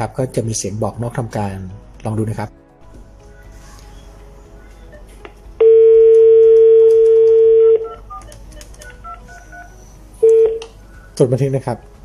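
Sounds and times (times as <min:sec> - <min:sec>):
short keypad tones: 0:05.6 - 0:10.6
phone dial tone: 0:05.6 - 0:10.7.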